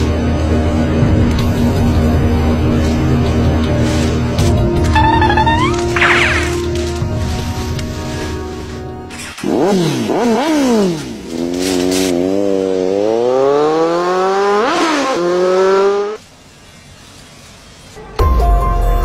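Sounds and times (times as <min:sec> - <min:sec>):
motorcycle engine revving: 0:09.1 - 0:16.3.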